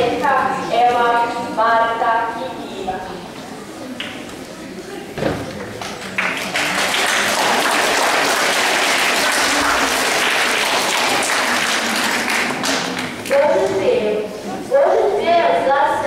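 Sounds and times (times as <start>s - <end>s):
audience applauding: 5.8s - 13.2s.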